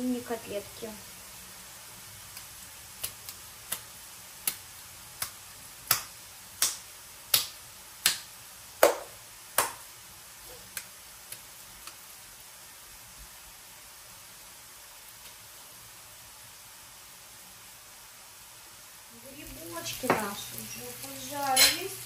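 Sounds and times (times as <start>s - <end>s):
wet slaps of minced meat: 2.3s - 9.9s, 10.6s - 12.0s.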